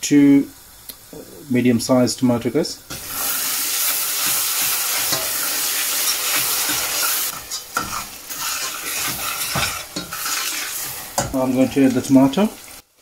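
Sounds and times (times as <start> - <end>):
onions sizzling in oil: 0.4 - 13.0
metal spatula scraping a pan: 2.9 - 12.0.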